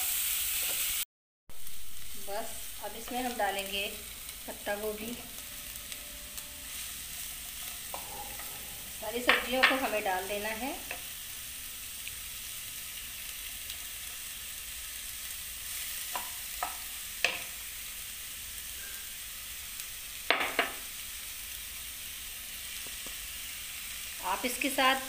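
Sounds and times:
vegetables sizzling in oil: 0.0 - 25.0.

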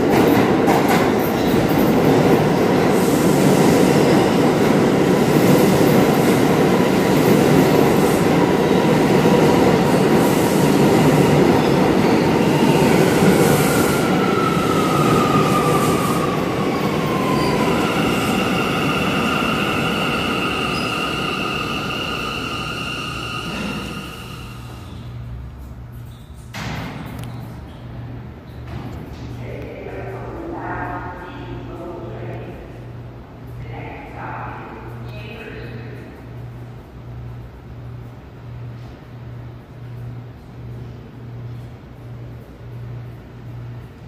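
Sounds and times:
subway train wheels rumbling: 0.0 - 44.0
high ringing squeal: 17.1 - 25.0.

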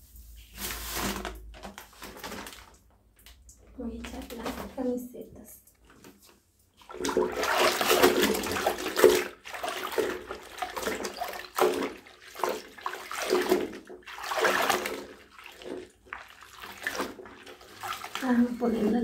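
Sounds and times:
cloth sloshing in soapy water: 3.8 - 5.0, 5.8 - 19.0.

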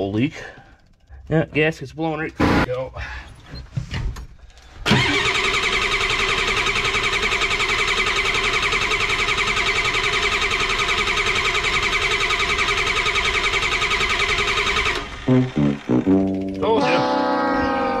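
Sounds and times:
diesel engine idling: 4.9 - 16.8.

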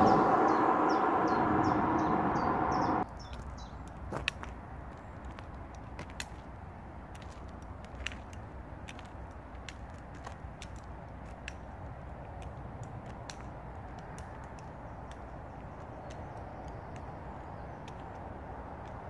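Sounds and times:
vehicle approaching: 0.0 - 3.1
low roadside rumble: 0.0 - 19.0
sharp clicks and taps: 12.3 - 17.2.

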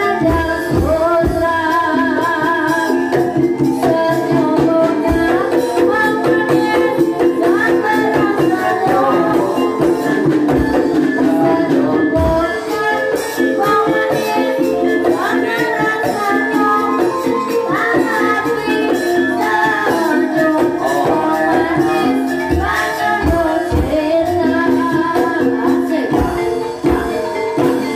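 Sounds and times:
gamelan music: 0.0 - 27.9.

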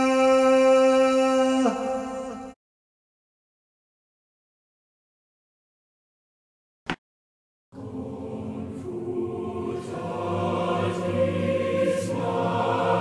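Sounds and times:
choir singing sustained chords: 7.8 - 13.0.

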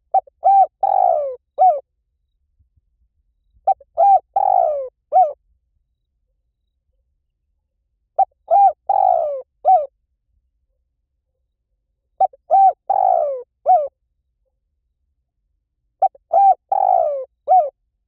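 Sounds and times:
dove cooing: 0.0 - 1.8, 3.6 - 5.4, 8.2 - 9.9, 12.2 - 13.9, 16.0 - 17.8.

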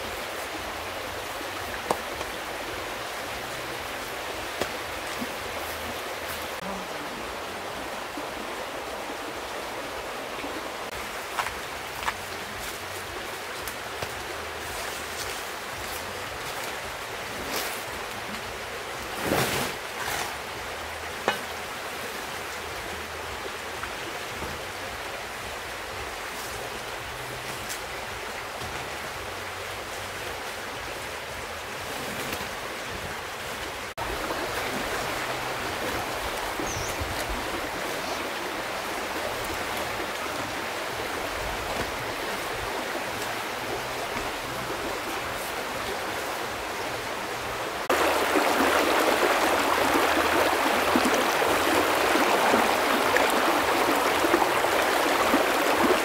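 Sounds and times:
river rushing: 0.0 - 56.0
leaves rustling and knocking: 11.1 - 18.5, 19.1 - 20.5.

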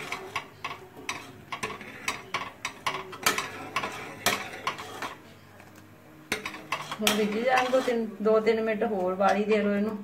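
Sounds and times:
metal ladle scraping metal pot: 0.0 - 5.3, 6.3 - 8.2.

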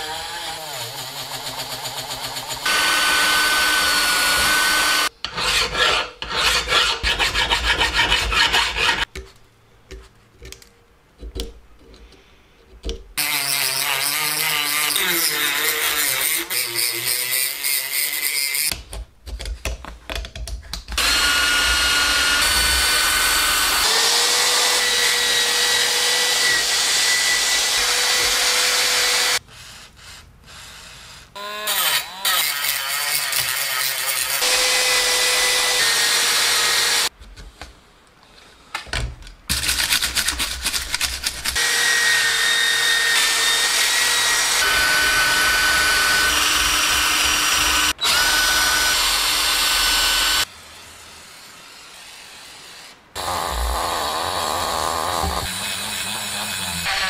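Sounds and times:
drill motor whine: 2.6 - 5.1, 21.0 - 29.4, 41.6 - 50.4.

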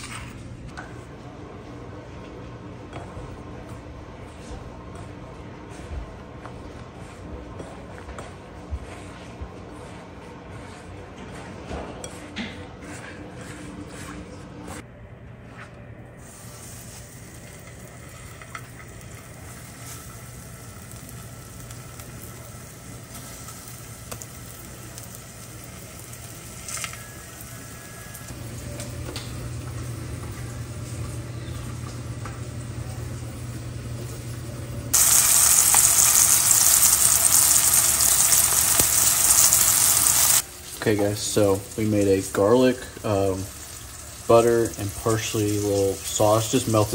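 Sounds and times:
fish frying in oil: 34.9 - 46.9.

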